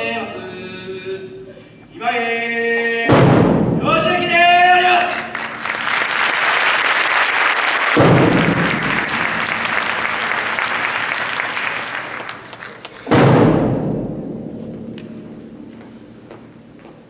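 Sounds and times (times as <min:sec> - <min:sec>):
bass drum hits ringing: 0:03.1 - 0:04.1, 0:08.0 - 0:10.5, 0:13.1 - 0:16.8
audience applause: 0:05.1 - 0:13.1.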